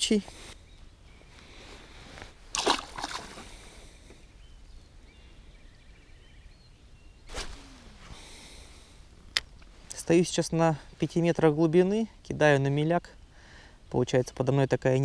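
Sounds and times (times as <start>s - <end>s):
faint water sloshing: 2.2s - 4.0s
water splashing: 2.5s - 3.6s.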